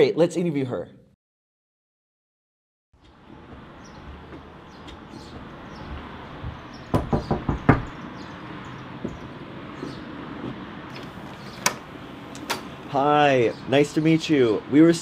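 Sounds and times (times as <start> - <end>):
knocks on front door: 3.4 - 8.0, 9.0 - 10.6
low outdoor background hiss: 3.7 - 15.0.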